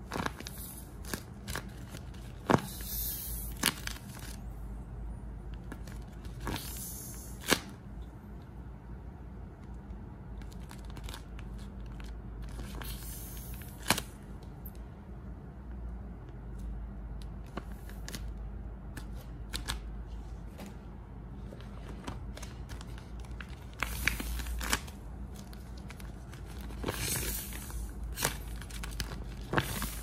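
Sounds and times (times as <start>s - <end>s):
paper crinkling when squeezed: 21.4s - 30.0s.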